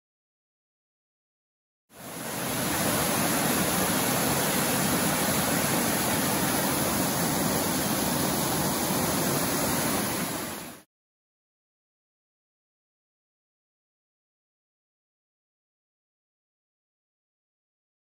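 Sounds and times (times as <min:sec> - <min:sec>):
waterfall rushing over rocks: 0:01.9 - 0:10.9.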